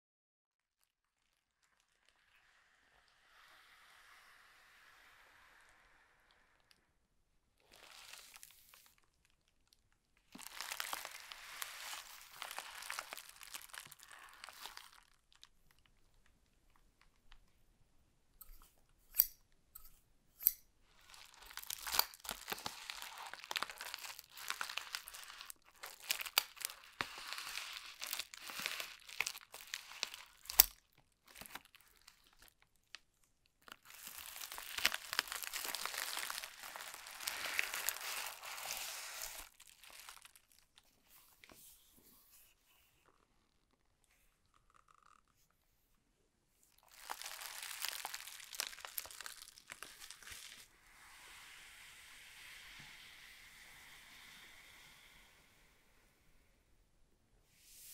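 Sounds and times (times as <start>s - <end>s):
plastic mailer crinkling: 10.3s - 15.5s, 21.0s - 32.6s, 33.6s - 40.6s, 46.8s - 50.7s.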